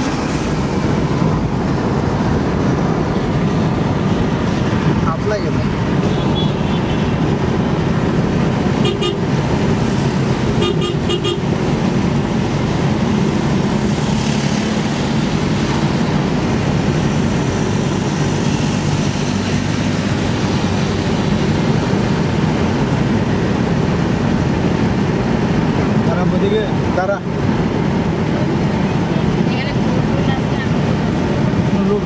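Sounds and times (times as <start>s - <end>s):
car road and engine noise: 0.0s - 32.0s
car horn toots: 8.8s - 9.3s, 10.6s - 11.5s.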